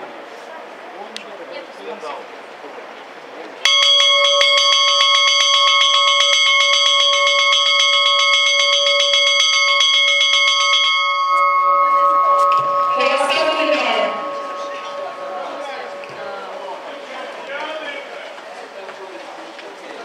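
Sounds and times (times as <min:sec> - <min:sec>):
bell rung rapidly: 0:03.6 - 0:18.1.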